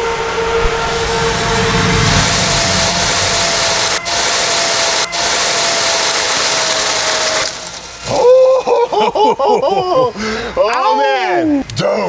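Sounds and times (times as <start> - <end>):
milling machine cutting metal: 0.1 - 8.2.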